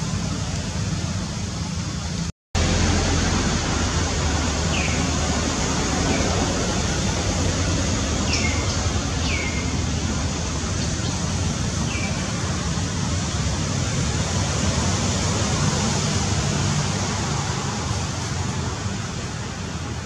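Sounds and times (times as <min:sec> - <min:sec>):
loud rushing noise: 0:00.0 - 0:20.0.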